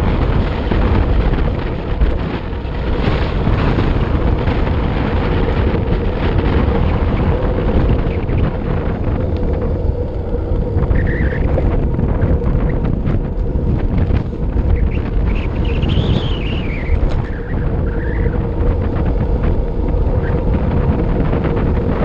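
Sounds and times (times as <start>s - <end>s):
steady low hum: 0.0s - 22.0s
wind buffeting microphone: 0.0s - 22.0s
faint high whine: 5.0s - 22.0s.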